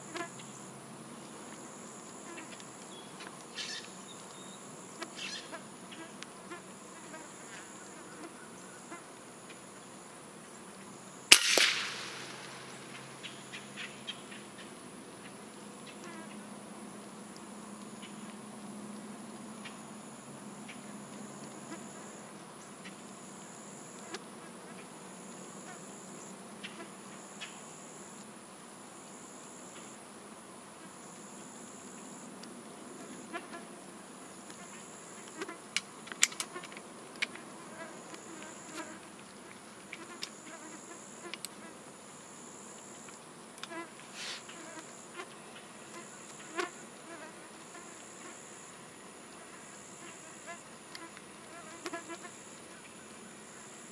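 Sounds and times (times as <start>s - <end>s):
insect pulsing high buzz: 3.6s - 9.1s, 10.9s - 14.6s, 37.4s - 39.1s, 39.8s - 53.9s
insects high-pitched drone: 10.9s - 24.2s, 37.4s - 53.9s
sharp clicks: 11.3s - 12.8s.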